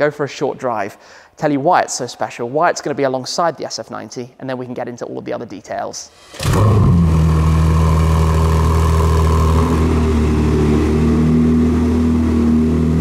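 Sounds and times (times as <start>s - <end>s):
car engine starting and idling: 6.2s - 13.0s.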